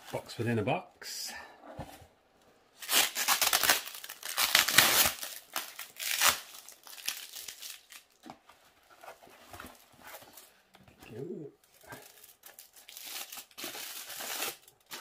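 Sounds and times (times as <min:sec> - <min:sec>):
bubble wrap crinkling and rustling: 0:02.8 - 0:10.6, 0:11.6 - 0:15.0.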